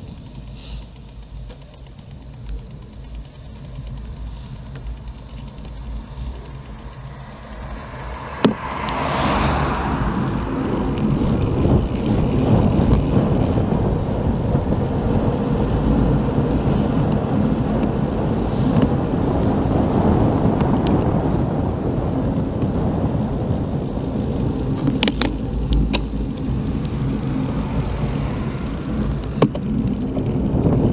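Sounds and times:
bicycle road rumble: 0.0s - 30.9s
wind rushing over microphone: 5.8s - 30.9s.

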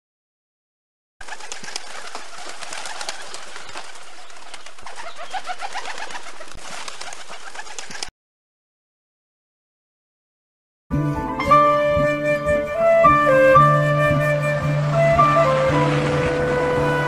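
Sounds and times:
birds chirping: 1.2s - 8.1s.

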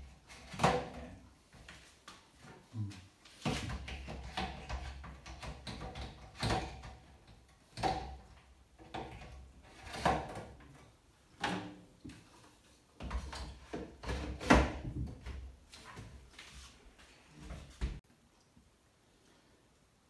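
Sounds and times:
plastic shelves knocking and clattering: 0.0s - 2.6s, 3.3s - 12.4s, 13.0s - 16.2s.

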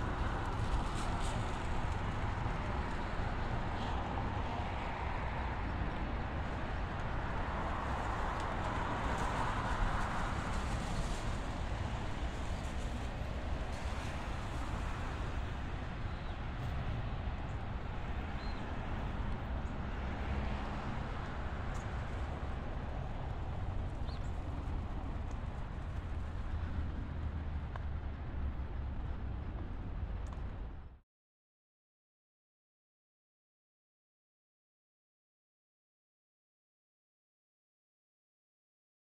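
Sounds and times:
low vehicle rumble: 0.0s - 31.0s.

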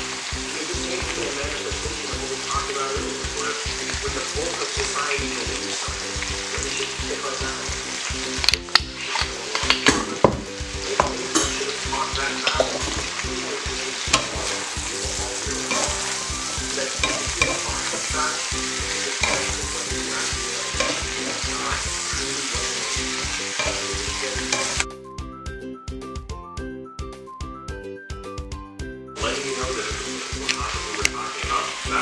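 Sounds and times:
food sizzling in a wok: 0.0s - 24.9s, 29.2s - 32.0s
music: 0.0s - 32.0s
spatula tapping and scraping pan: 14.1s - 14.5s, 15.6s - 18.1s, 18.8s - 22.1s, 23.5s - 24.8s.

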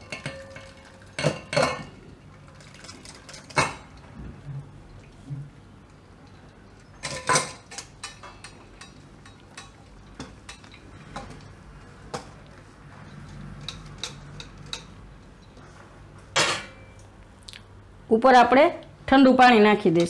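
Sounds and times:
spoon clinking against metal strainer: 0.0s - 1.9s.

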